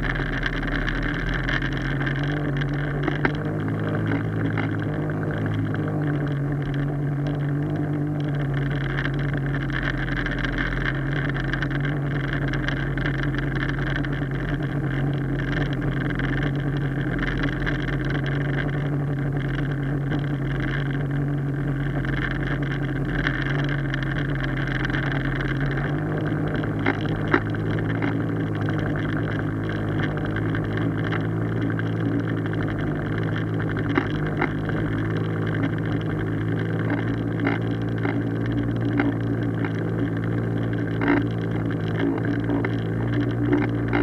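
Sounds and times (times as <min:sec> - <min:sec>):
outboard motor running: 0:00.0 - 0:44.0.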